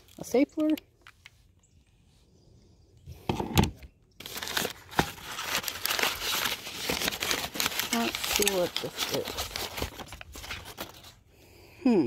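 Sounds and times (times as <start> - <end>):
wrapping crinkling: 4.2 - 11.2.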